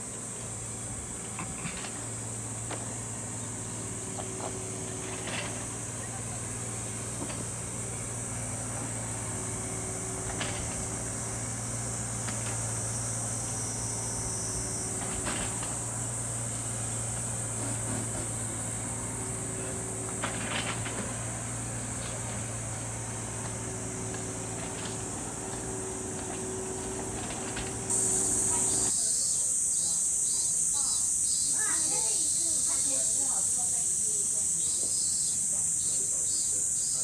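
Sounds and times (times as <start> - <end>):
cicadas droning: 0.0 - 37.0.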